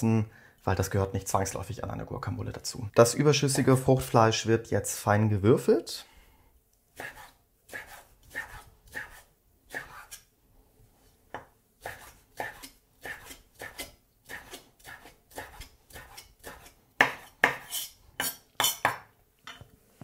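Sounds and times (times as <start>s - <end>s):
knife chopping on wooden board: 11.3s - 19.1s.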